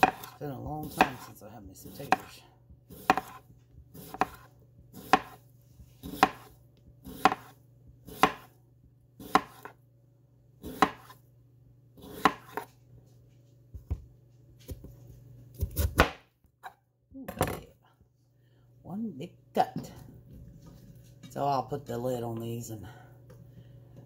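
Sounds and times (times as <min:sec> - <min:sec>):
knife slicing potatoes: 0:00.0 - 0:08.6, 0:09.2 - 0:09.8, 0:10.6 - 0:11.2, 0:12.0 - 0:12.8, 0:15.5 - 0:16.8.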